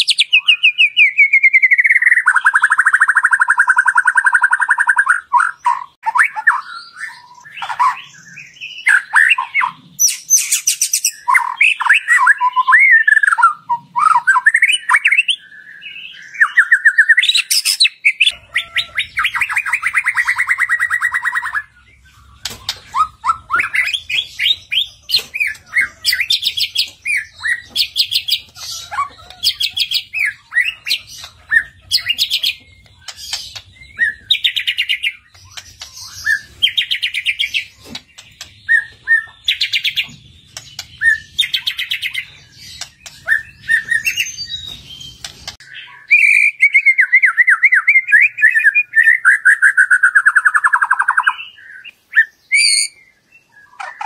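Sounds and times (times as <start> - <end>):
bird singing whistled phrases: 0.0 - 21.7, 40.8 - 42.4, 43.0 - 54.0.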